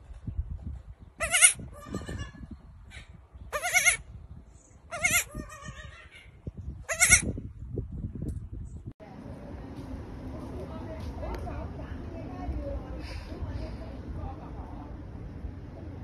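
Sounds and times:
baby goat bleating: 0:01.2 - 0:02.5, 0:03.5 - 0:04.0, 0:04.9 - 0:06.3, 0:06.9 - 0:07.4.

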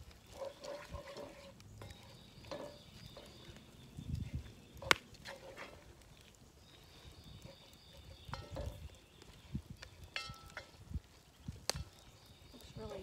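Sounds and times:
spoon scraping a cast iron pot: 0:00.1 - 0:03.6, 0:04.2 - 0:06.0, 0:07.2 - 0:09.0, 0:09.9 - 0:10.8.

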